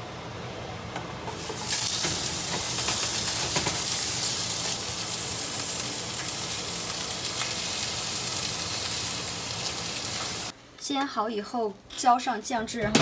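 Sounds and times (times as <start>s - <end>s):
chicken sizzling in skillet: 1.3s - 10.5s.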